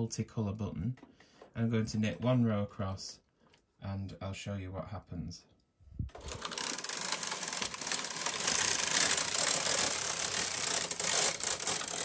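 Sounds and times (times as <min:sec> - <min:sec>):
knitting machine clattering whir: 0:06.1 - 0:12.0.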